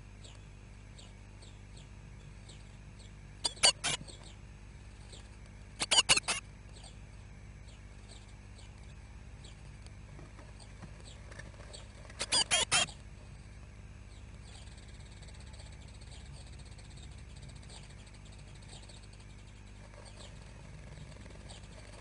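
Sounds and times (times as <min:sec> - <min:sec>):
nestlings chirping rapidly: 0:00.2 - 0:04.4, 0:05.0 - 0:07.0, 0:10.5 - 0:13.1, 0:14.1 - 0:22.0
faint thin high calls: 0:05.8 - 0:06.4.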